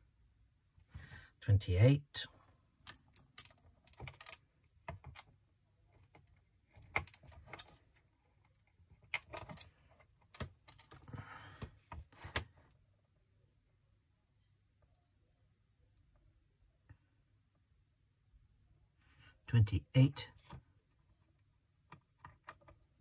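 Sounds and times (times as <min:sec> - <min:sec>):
wire leads clicking and rattling: 0:02.8 - 0:05.3, 0:09.0 - 0:11.1.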